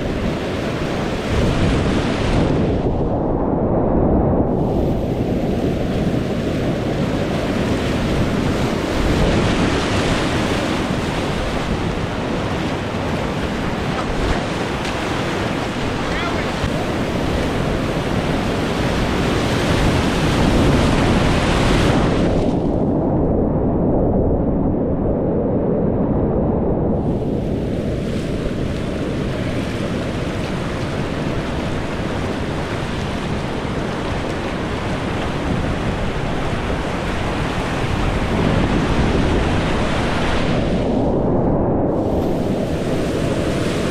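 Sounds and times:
whitewater rushing: 0:06.8 - 0:22.3.

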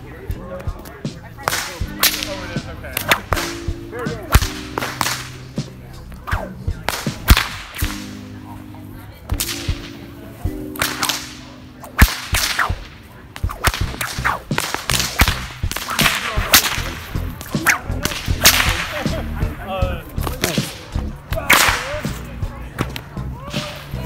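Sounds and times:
bullwhip cracking: 0:00.8 - 0:03.6, 0:04.3 - 0:08.2, 0:09.4 - 0:10.0, 0:10.7 - 0:19.2, 0:20.2 - 0:22.2, 0:22.8 - 0:24.0.

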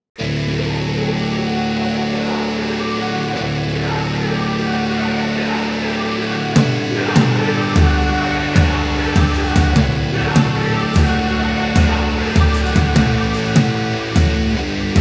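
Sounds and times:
beat of heavy hits: 0:06.6 - 0:15.0.

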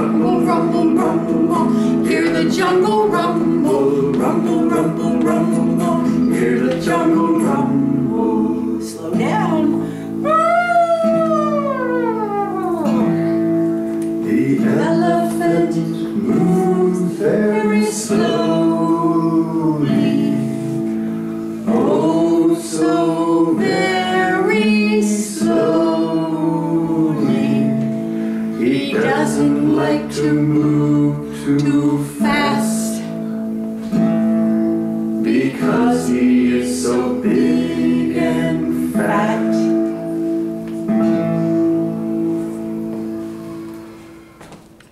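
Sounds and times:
person singing: 0:00.0 - 0:21.0, 0:21.6 - 0:33.4, 0:35.2 - 0:40.1
acoustic guitar: 0:00.0 - 0:44.9.

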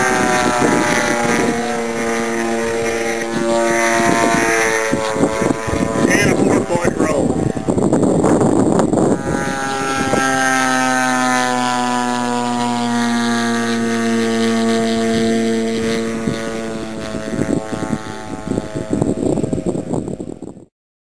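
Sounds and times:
model plane engine flying past: 0:00.0 - 0:20.7
wind on microphone: 0:00.0 - 0:20.7.

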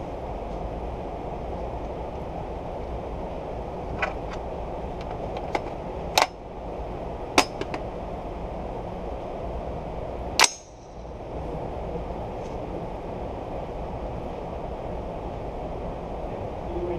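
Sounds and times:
low rumble: 0:00.0 - 0:16.9
sharp cracks: 0:10.4 - 0:10.9.

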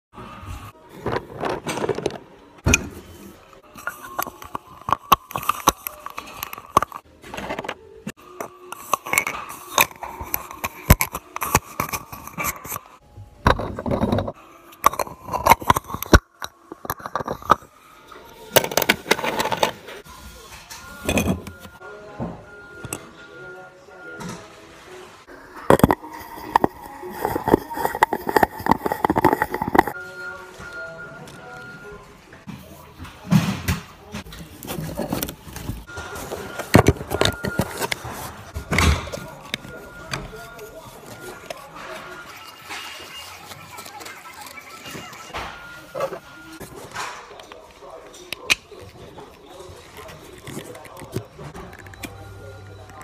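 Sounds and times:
plastic rubbing scrape: 0:08.8 - 0:17.7, 0:25.3 - 0:30.0, 0:34.4 - 0:47.0, 0:48.7 - 0:52.1.

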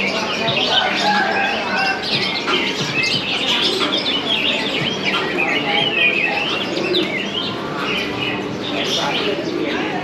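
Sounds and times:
caged birds chirping: 0:00.0 - 0:10.0.

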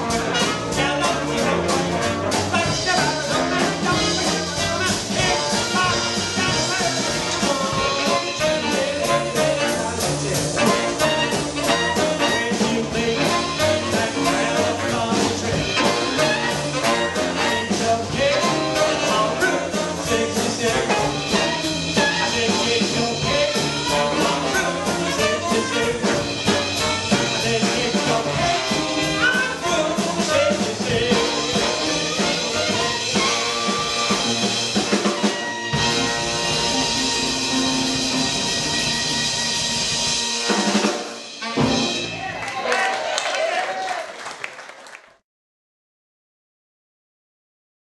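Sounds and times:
swing jazz band playing: 0:00.0 - 0:42.6
man singing: 0:00.3 - 0:34.0.

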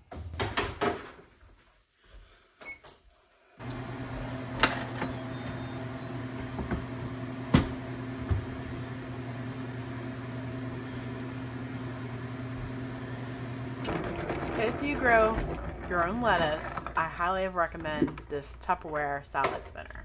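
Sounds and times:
steady machine hum: 0:03.6 - 0:17.0.

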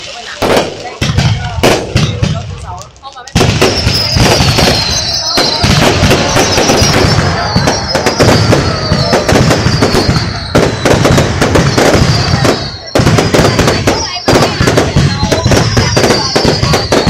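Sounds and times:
fireworks bangs and crackling: 0:00.0 - 0:17.0
falling firework whistles: 0:03.4 - 0:17.0.

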